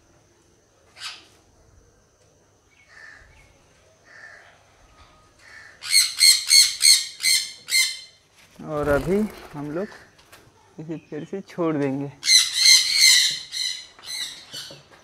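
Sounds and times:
parrot squawking: 5.8 - 8.1, 12.2 - 14.7.

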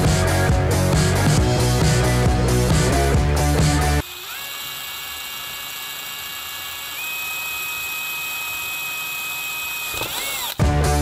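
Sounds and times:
cordless drill whining: 3.9 - 11.0.

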